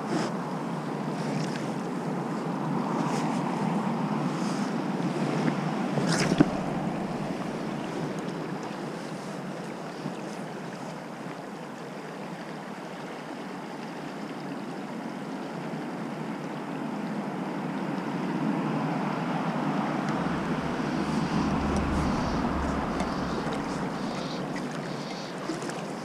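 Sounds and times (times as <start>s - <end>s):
river current rushing: 0.8s - 10.1s, 16.9s - 26.0s
wind rumble on microphone: 1.9s - 9.0s, 18.3s - 25.3s.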